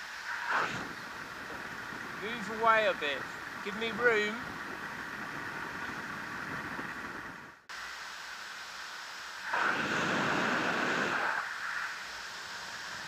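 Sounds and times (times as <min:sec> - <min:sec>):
wind rushing over microphone: 0:00.0 - 0:07.7, 0:09.5 - 0:13.0.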